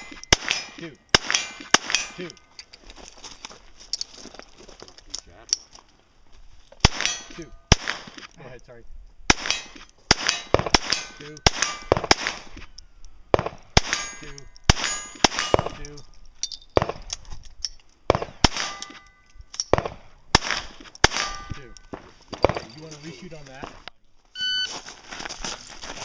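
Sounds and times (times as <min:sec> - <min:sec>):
handgun shots: 0:00.0 - 0:02.4, 0:06.8 - 0:08.3, 0:09.3 - 0:12.6, 0:13.3 - 0:15.8, 0:19.7 - 0:21.6
steel targets clanging: 0:00.0 - 0:02.8, 0:06.9 - 0:08.4, 0:09.3 - 0:13.0, 0:13.6 - 0:16.8, 0:18.4 - 0:19.8, 0:21.0 - 0:23.4.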